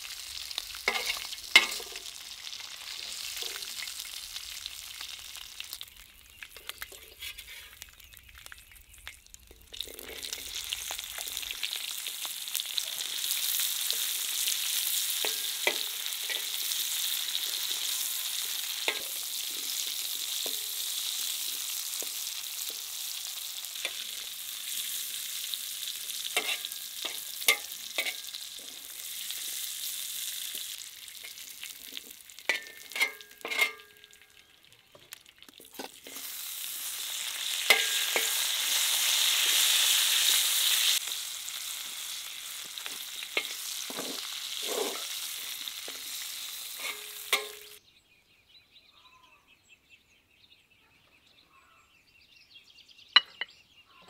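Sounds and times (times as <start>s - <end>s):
food sizzling in oil: 0.0s - 47.8s
metal spatula scraping a pan: 0.8s - 2.2s, 6.6s - 7.9s, 9.8s - 10.7s, 13.1s - 22.7s, 23.7s - 25.5s, 26.1s - 29.7s, 30.5s - 34.2s, 35.7s - 41.0s, 42.8s - 47.8s.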